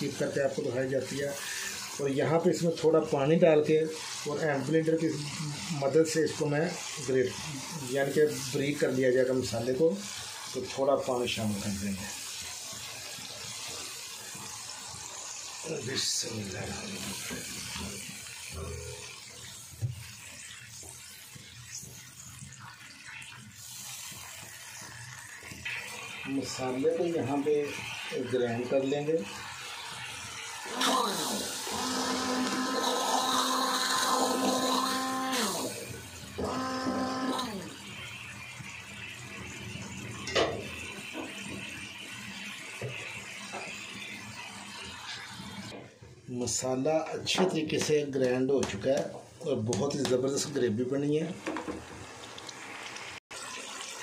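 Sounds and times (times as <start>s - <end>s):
masala sizzling in wok: 0.0s - 54.0s
spatula knocking pan: 47.3s - 50.4s.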